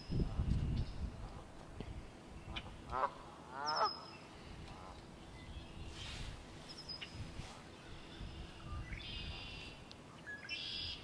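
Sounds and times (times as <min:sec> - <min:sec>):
blackbird buzzy trilled song: 0:02.4 - 0:04.4, 0:05.2 - 0:11.0.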